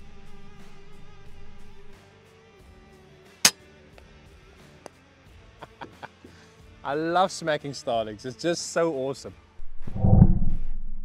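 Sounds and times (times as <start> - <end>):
quiet guitar music: 0.0 - 2.0.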